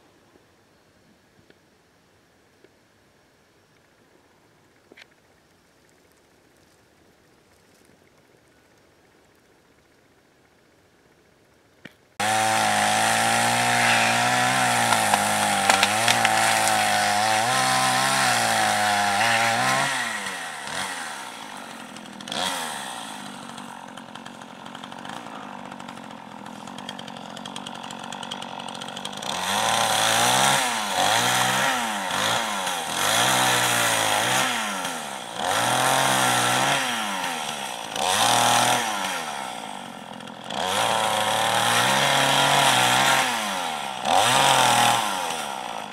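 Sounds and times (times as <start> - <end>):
chainsaw running and revving: 12.2 - 45.9.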